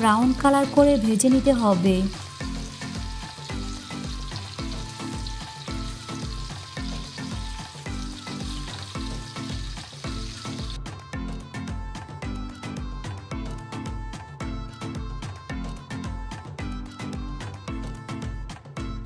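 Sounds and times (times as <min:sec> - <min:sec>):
chicken sizzling in oil: 0:00.0 - 0:10.8
background music with beat: 0:00.0 - 0:19.0.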